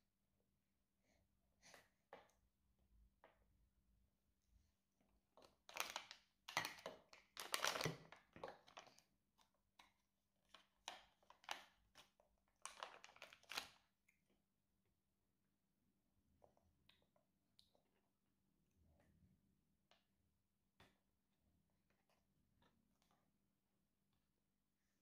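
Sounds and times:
plastic pouch crinkling: 7.4 - 8.1, 12.6 - 13.8.

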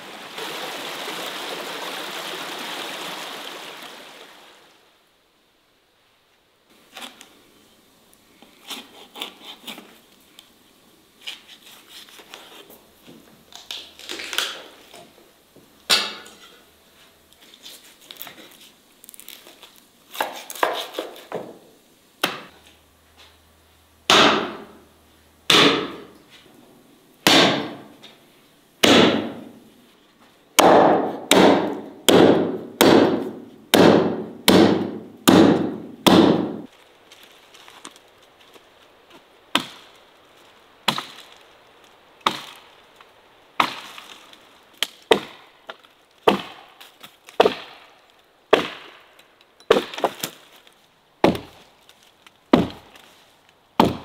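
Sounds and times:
cleaver chopping meat and bone: 24.1 - 24.6, 25.5 - 26.0, 27.3 - 27.8, 28.8 - 29.3, 30.6 - 36.6, 46.3 - 46.6, 47.4 - 47.8, 51.2 - 51.6, 52.5 - 52.9, 53.8 - 54.0.

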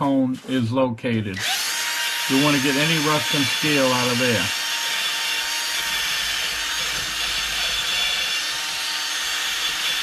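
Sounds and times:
motor whir: 1.4 - 10.0.

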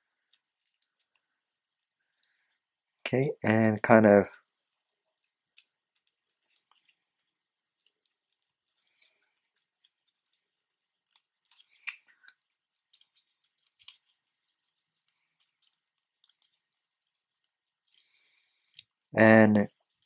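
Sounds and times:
paper crinkling: 4.3 - 19.1.

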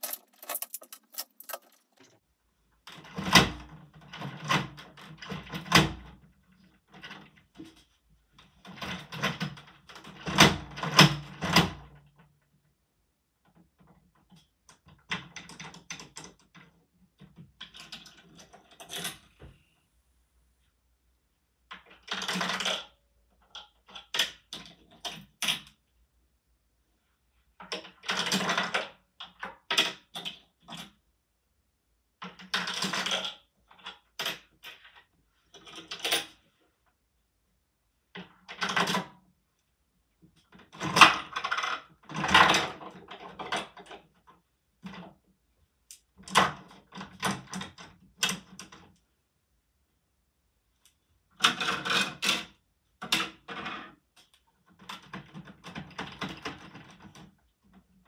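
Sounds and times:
plastic bricks clicking and clattering: 0.0 - 2.2.

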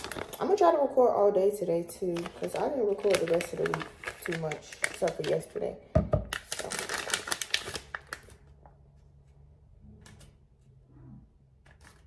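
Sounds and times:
plastic bag crinkling: 0.0 - 1.0, 1.9 - 8.5.

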